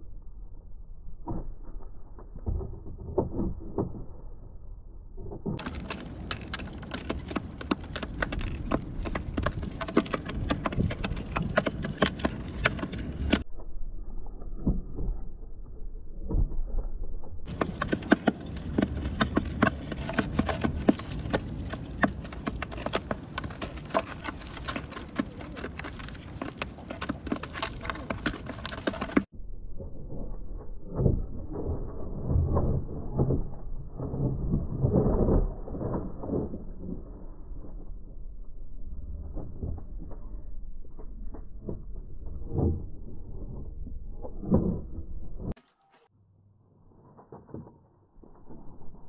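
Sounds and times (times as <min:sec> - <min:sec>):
pigeons pecking on wooden tray: 0:05.6 - 0:13.4, 0:17.5 - 0:29.3.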